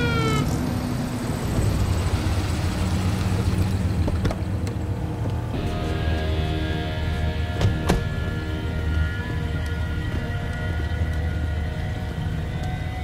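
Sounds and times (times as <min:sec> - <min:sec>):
police siren wail: 0:00.0 - 0:01.3
car engines rumbling slowly: 0:00.0 - 0:13.0.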